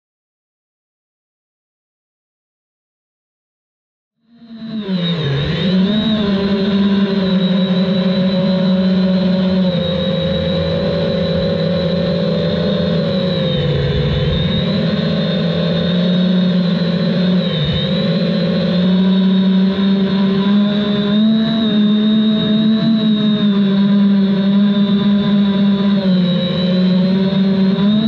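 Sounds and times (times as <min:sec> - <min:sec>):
drone propellers whining: 0:04.2 - 0:28.0.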